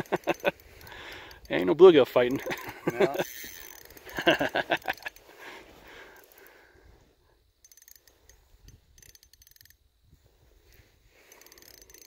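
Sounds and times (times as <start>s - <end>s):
fishing reel clicking: 0.0s - 5.3s, 6.1s - 6.5s, 7.6s - 9.8s, 10.7s - 12.0s.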